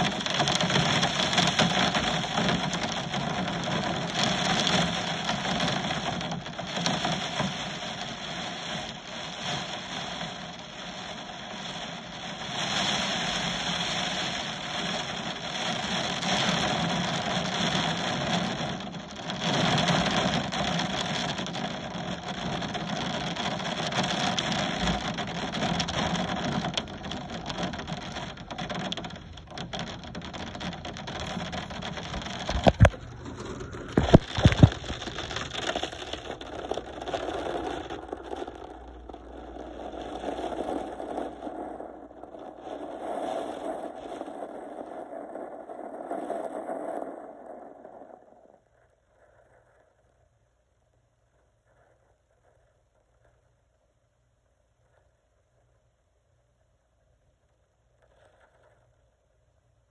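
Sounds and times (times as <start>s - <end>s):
heavy rain pouring: 0.0s - 44.9s.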